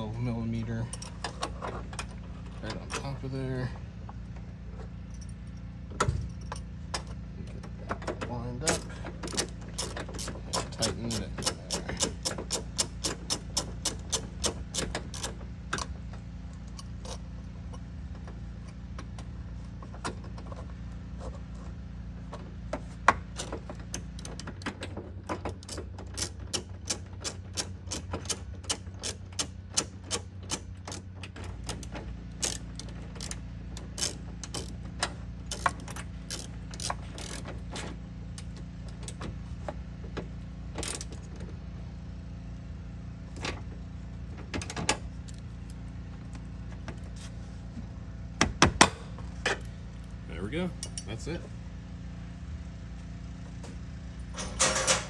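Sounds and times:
ratchet wrench clicking: 8.7 - 15.9, 25.5 - 37.6.

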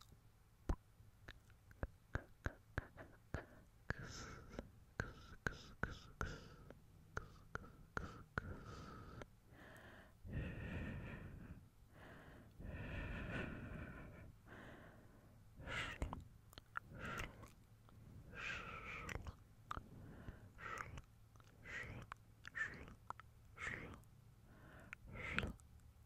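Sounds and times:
wet mouth clicks: 0.7 - 6.4, 15.7 - 24.1, 24.8 - 25.9.

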